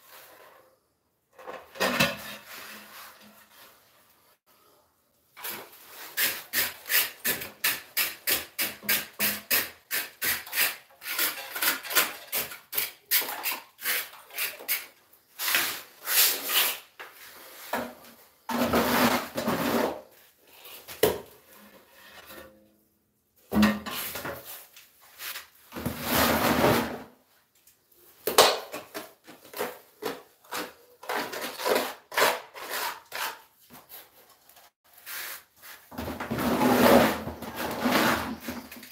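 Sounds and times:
hand tool scraping tile: 5.4 - 20.9, 21.5 - 22.6, 25.2 - 27.1, 29.0 - 38.9.

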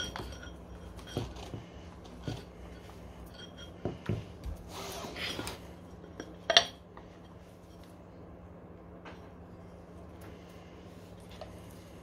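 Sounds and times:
metal tools clinking: 0.0 - 4.0.

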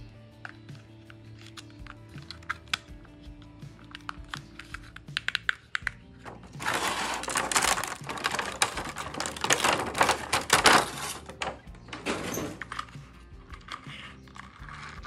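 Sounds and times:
background music: 0.0 - 15.0
small plastic clicks: 0.4 - 15.0
plastic packaging tray crinkling: 3.9 - 15.0.

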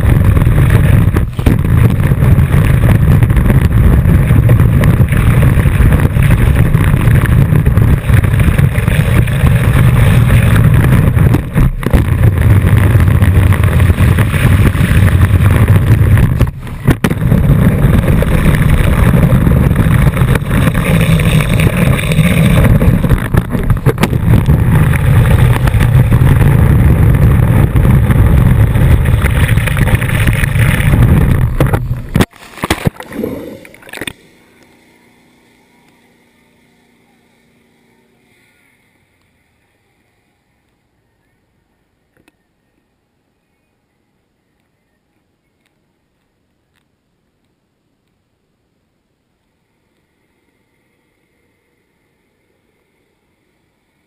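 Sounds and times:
wind buffeting camera: 0.0 - 34.2.

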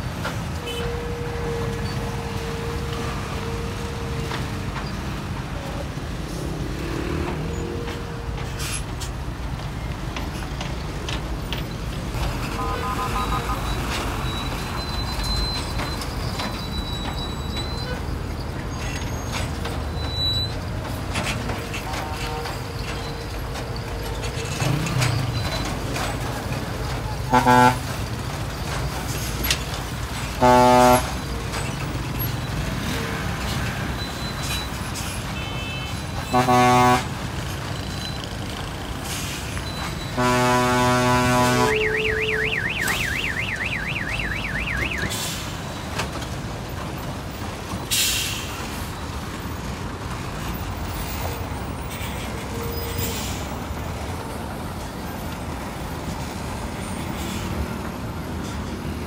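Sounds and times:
traffic engines running: 0.0 - 59.0
vehicle horn blasts: 0.6 - 1.5, 12.5 - 13.7, 27.3 - 27.9, 30.4 - 31.2, 35.4 - 37.1, 40.1 - 45.0
warbling musical horn: 40.2 - 45.0.

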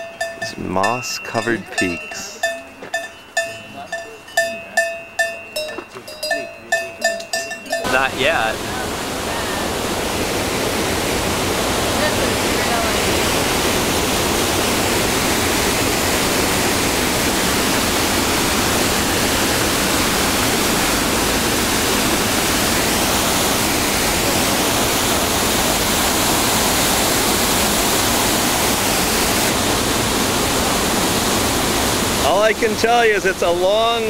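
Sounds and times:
mountain torrent rushing: 7.8 - 34.0.

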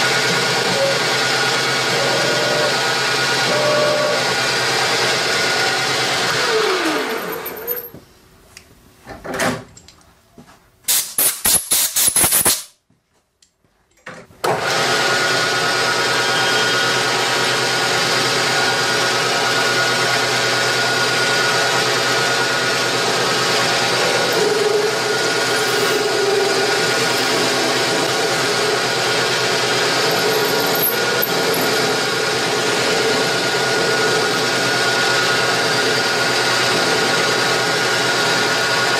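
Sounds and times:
metal lathe running: 0.0 - 7.4, 14.7 - 38.9.

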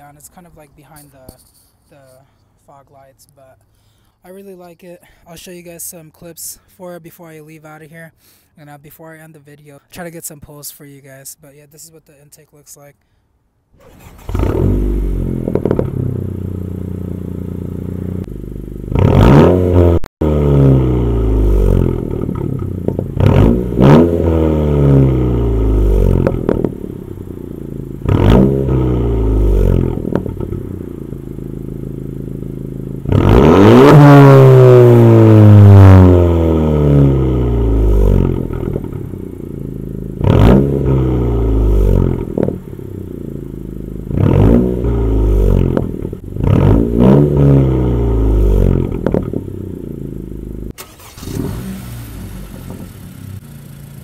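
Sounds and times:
car engine idling and revving: 13.8 - 54.0.

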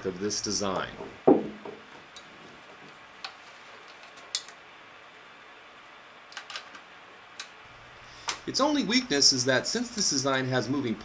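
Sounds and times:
tank knocking on table: 1.0 - 1.9.

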